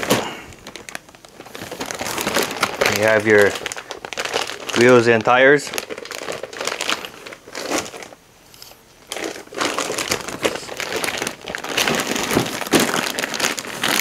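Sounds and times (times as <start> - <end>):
plastic bags crinkling: 0.0 - 14.0.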